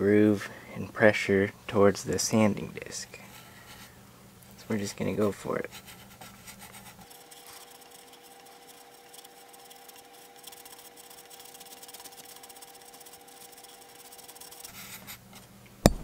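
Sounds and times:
faint hum: 0.0s - 16.0s
arrow shaft scraping on abrasive disc: 7.0s - 14.8s.

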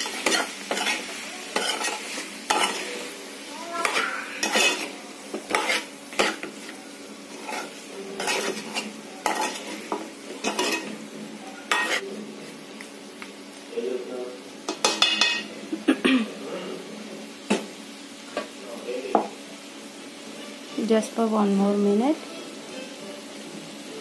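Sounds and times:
chicken sizzling in pan: 0.0s - 24.0s
ladle scraping metal pan: 3.8s - 6.5s, 7.3s - 10.9s, 11.7s - 12.0s.

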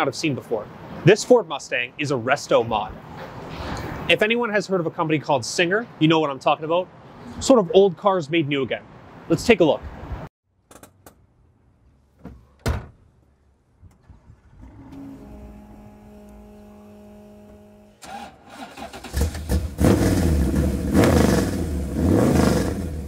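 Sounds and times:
car engine starting and running: 13.9s - 23.0s.

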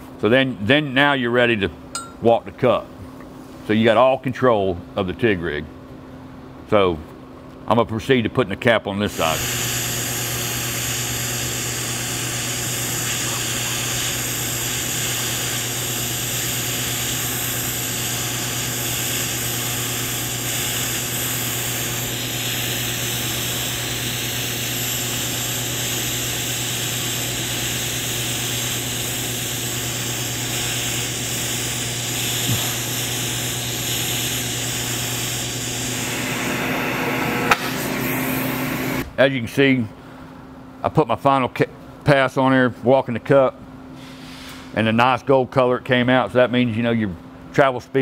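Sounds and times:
steady low hum: 0.0s - 47.9s
welding arc hissing: 9.1s - 39.0s.

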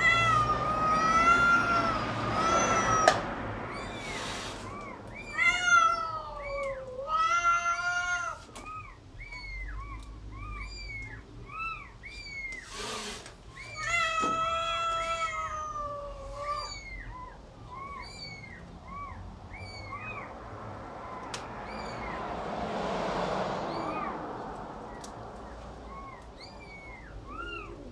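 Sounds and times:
kittens mewing: 0.0s - 22.4s, 23.5s - 27.9s
rustle: 2.8s - 7.1s.

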